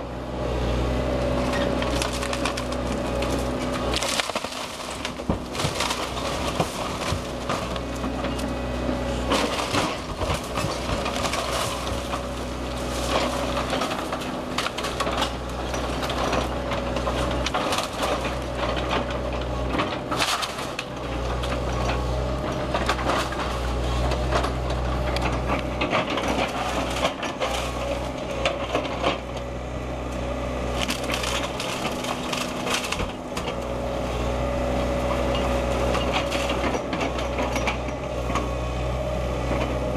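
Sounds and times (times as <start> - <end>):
excavator diesel engine running: 0.0 - 39.9
timber cracking and splintering: 1.3 - 29.4, 30.1 - 33.9
falling debris crashing: 1.8 - 8.4, 9.1 - 22.0.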